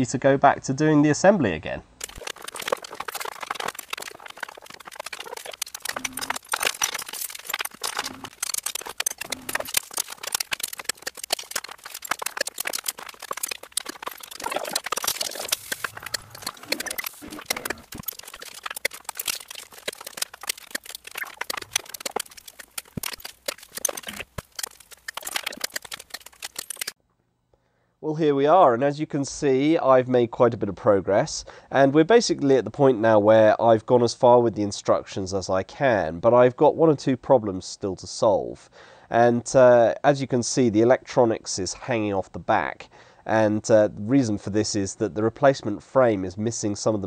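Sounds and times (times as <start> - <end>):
quick clicks knocks and rattles: 2.0 - 27.0.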